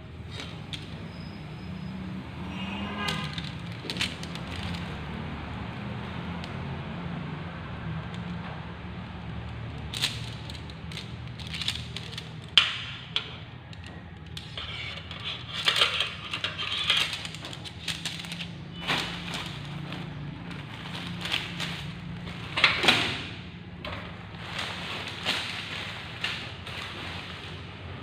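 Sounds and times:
metal tent poles clinking: 14.4s - 23.2s
nylon fabric rustling: 16.4s - 23.1s, 24.0s - 28.0s.

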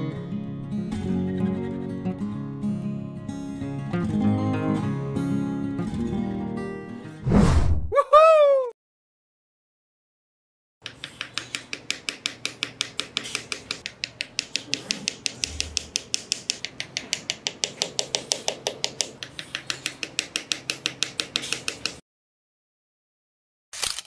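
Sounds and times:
mallet tapping wooden posts: 10.8s - 22.0s.

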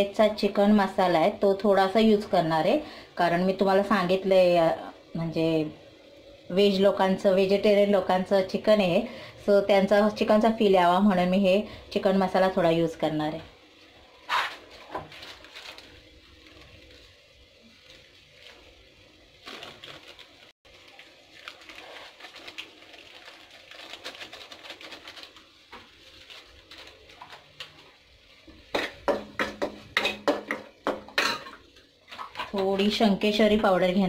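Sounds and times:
spices frying with faint crackle: 0.0s - 34.0s
spoon scraping a pan: 28.6s - 32.6s.

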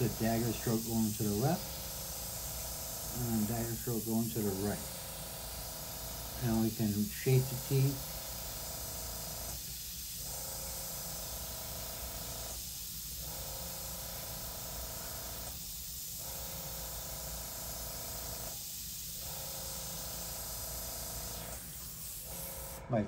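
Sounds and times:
airbrush spraying hiss: 0.0s - 22.9s.

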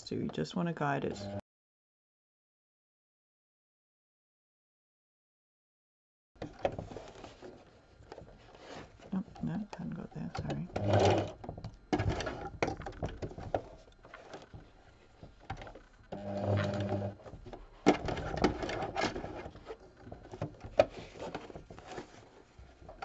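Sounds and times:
sewing machine stitching: 10.4s - 12.7s, 16.1s - 17.3s.

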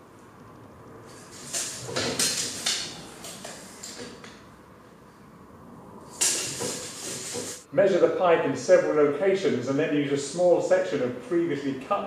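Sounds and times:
tape measure scraping plastic pipe: 1.1s - 4.1s, 6.1s - 7.7s.

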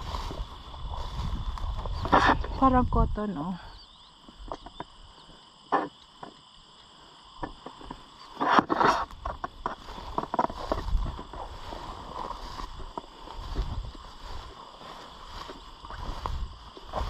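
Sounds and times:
footsteps through dry weeds: 0.0s - 2.8s, 7.8s - 17.0s
stems swishing and crackling: 8.4s - 17.0s.

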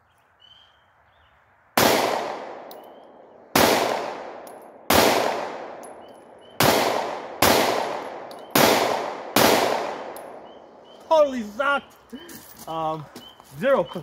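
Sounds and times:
pistol shots echoing: 1.8s - 11.0s.

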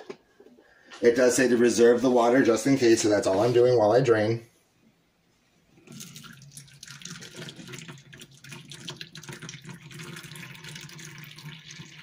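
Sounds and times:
water pouring into plastic cup: 5.8s - 12.0s.

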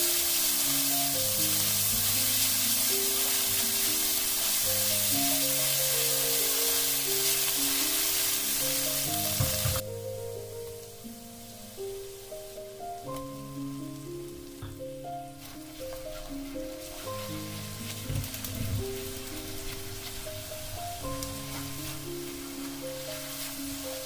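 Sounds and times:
spatula stirring in a wok: 0.0s - 9.8s, 19.0s - 24.0s
vegetables sizzling in hot oil: 0.0s - 24.0s.

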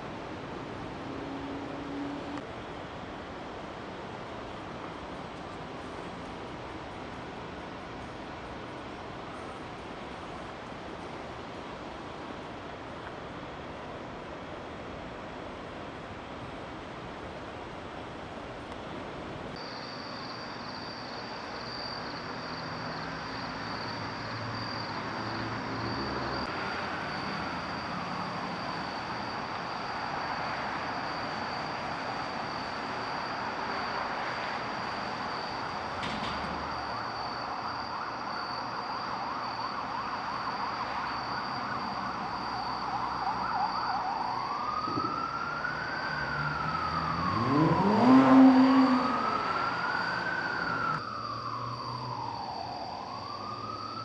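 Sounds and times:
traffic rumble: 0.0s - 54.0s
high-pitched whine: 19.5s - 54.0s
emergency siren wailing: 20.4s - 54.0s.

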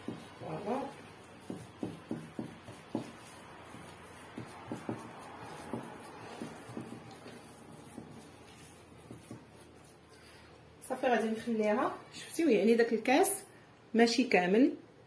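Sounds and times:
mixture knocking against glass bowl: 0.0s - 9.9s.

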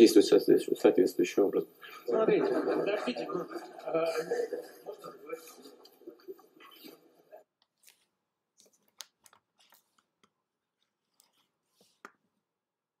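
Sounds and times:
faint clicks and crackles: 7.6s - 12.2s.

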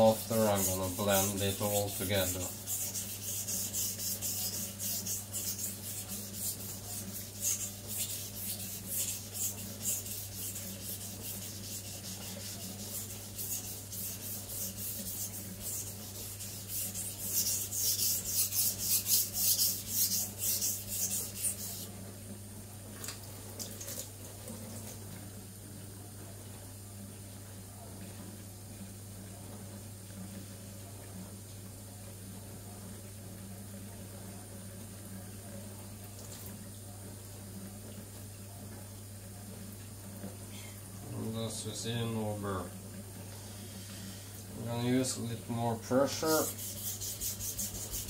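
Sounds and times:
knife scraping on whetstone: 0.0s - 21.9s, 46.1s - 48.0s
running tap hiss: 0.0s - 21.9s, 28.6s - 48.0s.

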